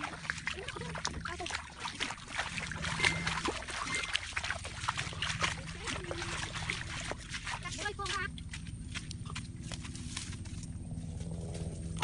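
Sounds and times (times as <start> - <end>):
leaves and twigs crackling: 7.7 - 12.0.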